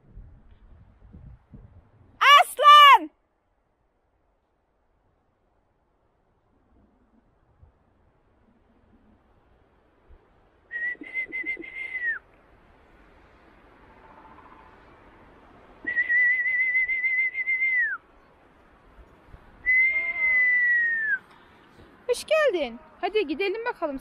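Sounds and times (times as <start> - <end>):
person whistling: 10.7 - 12.2, 15.8 - 18.0, 19.6 - 21.2.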